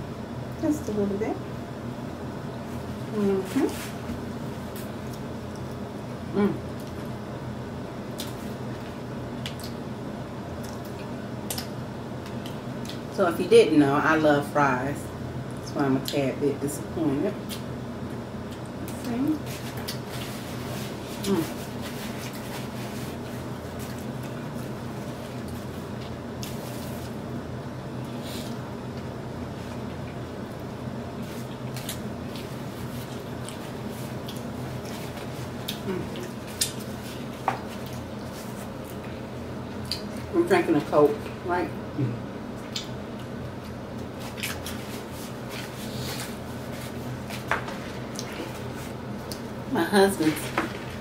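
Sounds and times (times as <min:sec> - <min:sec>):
steady low hum: 0:00.0 - 0:51.0
soft chewing: 0:03.8 - 0:06.0, 0:08.1 - 0:09.8, 0:10.6 - 0:13.0, 0:17.4 - 0:27.2, 0:28.0 - 0:40.3, 0:42.5 - 0:49.6.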